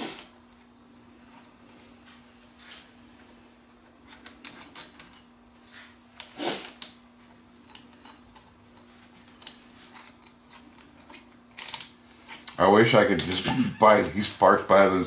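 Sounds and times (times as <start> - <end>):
steady low hum: 0.0 - 15.0
small parts clicking and tapping: 7.6 - 12.6.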